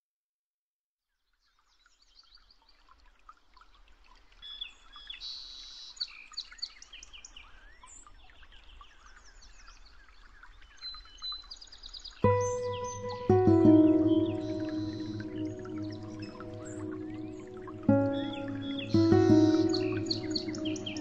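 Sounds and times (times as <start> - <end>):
small birds chirping: 4.4 - 21.0.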